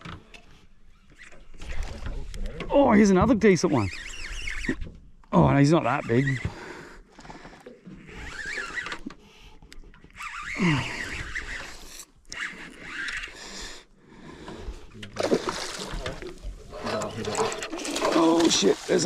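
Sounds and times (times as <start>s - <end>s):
fishing reel and line zipping: 3.7s - 4.8s, 6.0s - 6.6s, 8.0s - 9.3s, 10.0s - 13.8s.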